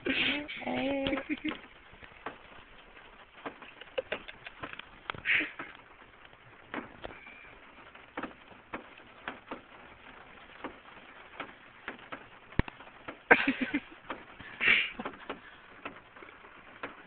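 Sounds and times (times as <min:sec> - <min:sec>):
faint taps and clicks: 0:10.5 - 0:13.3, 0:14.0 - 0:17.0.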